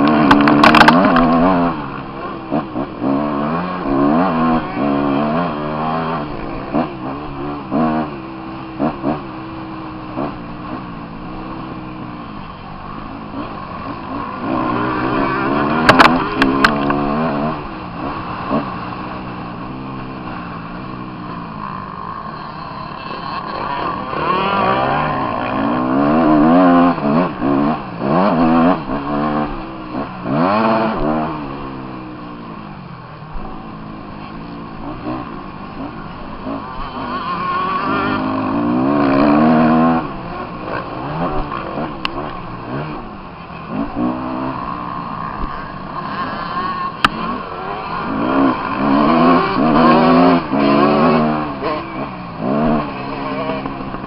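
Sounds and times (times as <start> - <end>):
motocross engine revving: 0.0 - 54.0.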